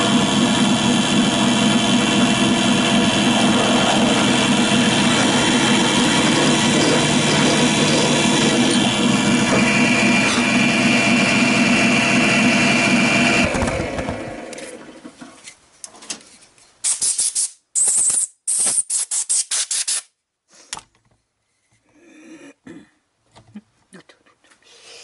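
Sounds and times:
drill press motor running: 0:00.0 - 0:15.0.

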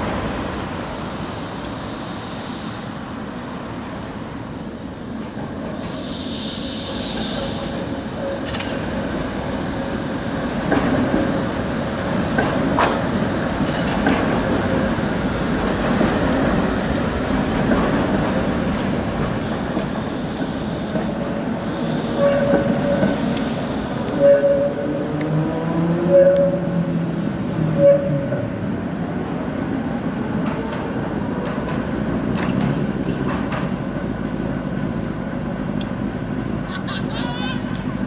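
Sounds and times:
tram wheels rumbling on rails: 0:00.0 - 0:38.0
wheels clicking over rail joints: 0:12.3 - 0:16.7.

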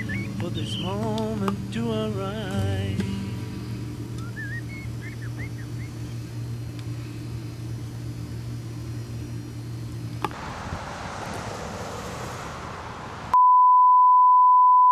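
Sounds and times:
low electrical hum: 0:00.0 - 0:13.2
outdoor rushing noise: 0:10.2 - 0:13.4
single-pitch beep tone: 0:13.4 - 0:14.9.

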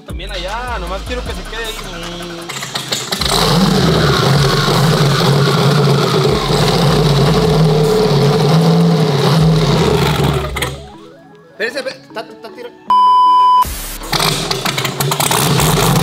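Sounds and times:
car engine running at raised revs: 0:01.0 - 0:11.0, 0:13.7 - 0:16.0.

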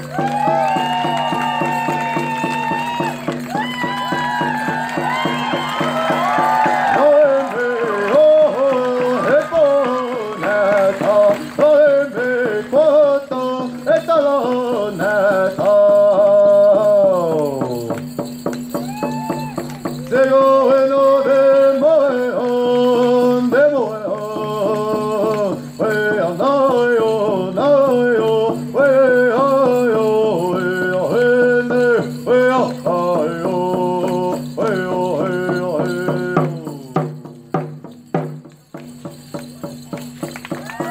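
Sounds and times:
person singing gliding phrases: 0:06.9 - 0:17.8, 0:20.1 - 0:37.1.

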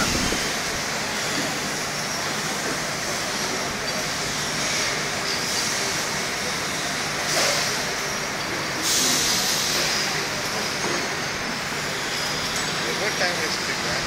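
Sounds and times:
compressed air hissing: 0:00.0 - 0:01.5
factory machinery noise: 0:00.0 - 0:14.0.

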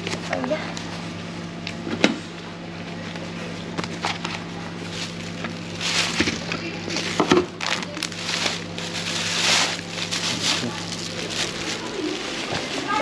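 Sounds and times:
steady low hum: 0:00.0 - 0:13.0
plastic bag rustling and crinkling: 0:04.0 - 0:13.0.

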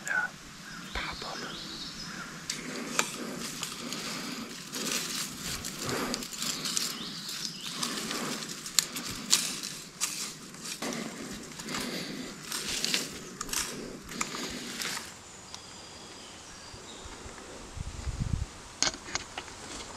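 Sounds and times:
weeds rustling against clothing: 0:01.2 - 0:15.3
stems snapping: 0:02.4 - 0:15.1.

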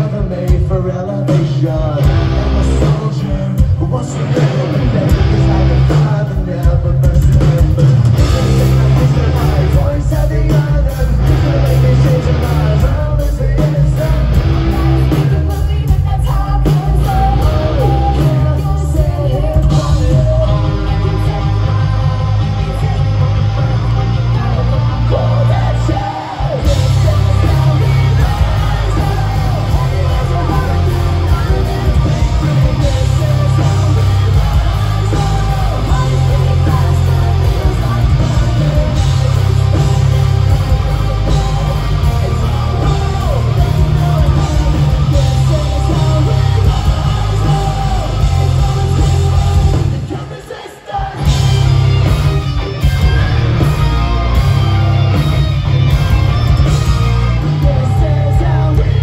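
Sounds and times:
loud hard rock band: 0:00.0 - 0:59.0
singing shouting vocal: 0:00.0 - 0:59.0.

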